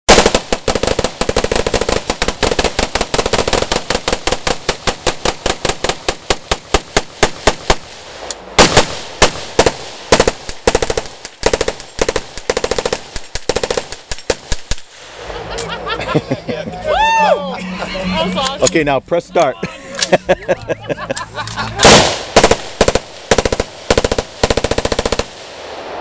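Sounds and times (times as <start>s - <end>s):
rapid rifle gunfire: 0.1s - 8.0s, 8.6s - 15.0s, 21.8s - 25.8s.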